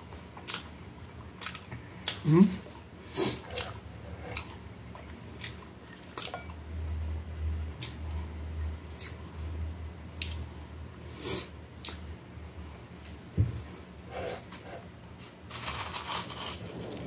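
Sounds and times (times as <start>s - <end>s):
food handling clicks and crackles: 15.2s - 17.0s
low rumble: 16.3s - 17.0s.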